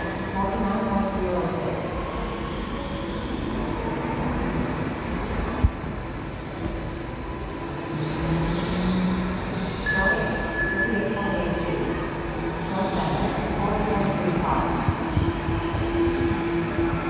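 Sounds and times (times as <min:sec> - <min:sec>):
go-kart motor whine: 0:07.9 - 0:09.9.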